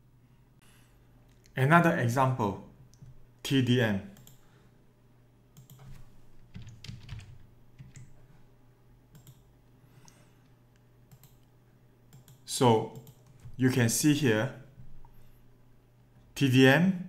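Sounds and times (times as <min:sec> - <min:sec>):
keyboard typing: 0:05.6 - 0:08.2, 0:09.1 - 0:09.5, 0:11.1 - 0:11.5, 0:12.1 - 0:13.6
mouse clicks: 0:09.1 - 0:09.4.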